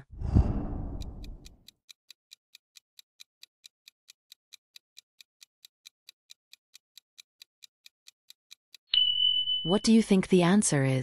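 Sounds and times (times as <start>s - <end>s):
clock ticking: 0.5s - 8.9s.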